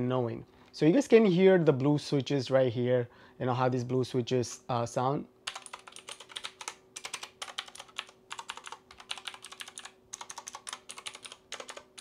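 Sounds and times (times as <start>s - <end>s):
mechanical keyboard clicking: 5.5s - 12.0s.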